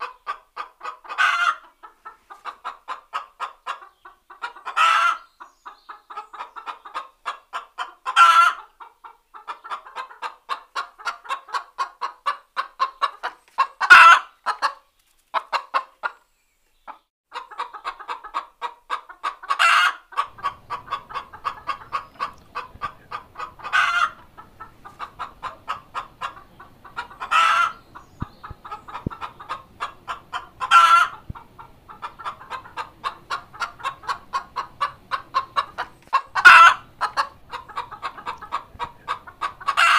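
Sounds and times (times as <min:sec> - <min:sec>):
hen clucking: 0:00.0 - 0:39.9
hen squawking: 0:19.6 - 0:27.8, 0:32.0 - 0:39.9.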